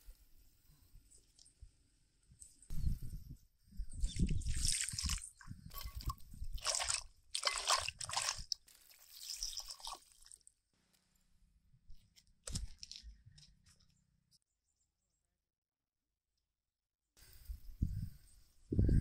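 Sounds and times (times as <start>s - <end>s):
food being stirred: 5.8s - 10.3s
liquid splashing in a pot: 6.0s - 10.5s.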